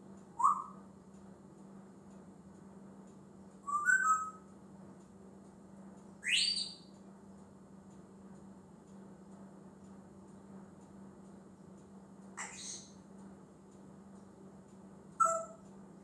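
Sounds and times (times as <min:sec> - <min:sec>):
parrot whistling: 0:00.4 - 0:00.8, 0:03.6 - 0:04.4, 0:15.2 - 0:15.6.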